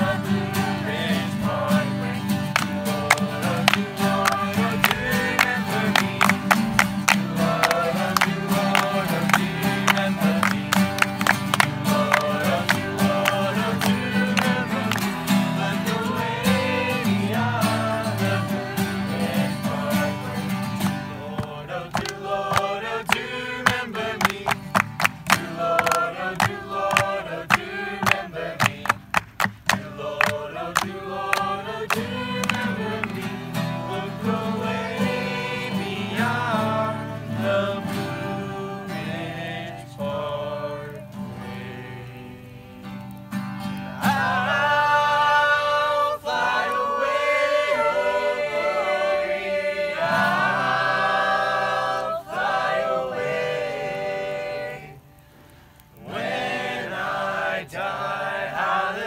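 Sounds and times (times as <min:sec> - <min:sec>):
group singing: 0:00.0 - 0:43.1, 0:43.8 - 0:59.0
acoustic guitars strumming: 0:00.0 - 0:59.0
people clapping in time: 0:02.4 - 0:16.7, 0:19.3 - 0:34.0.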